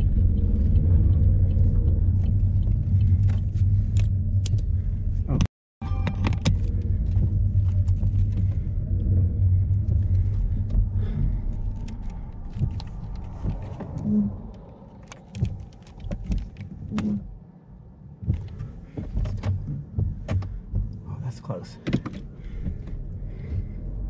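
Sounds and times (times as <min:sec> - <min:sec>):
car driving rumble: 0:00.0 - 0:05.5, 0:06.1 - 0:24.0.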